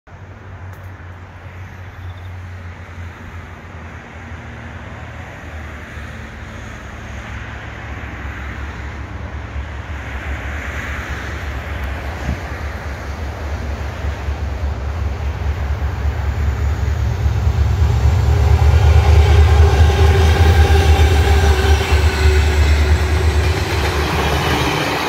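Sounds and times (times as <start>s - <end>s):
diesel locomotive rumble: 2.5s - 25.0s
wind in trees: 6.6s - 25.0s.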